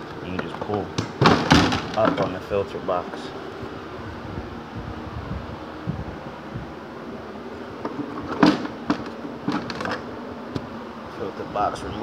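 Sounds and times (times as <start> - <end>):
steady background hum: 0.0 - 12.0
plastic clatter: 7.8 - 10.0.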